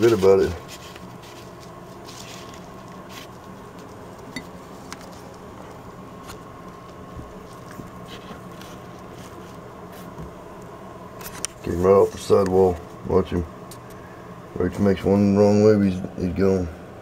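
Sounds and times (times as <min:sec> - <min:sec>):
handling ticks and scratching: 0:00.0 - 0:10.3
steady low hum: 0:00.0 - 0:17.0.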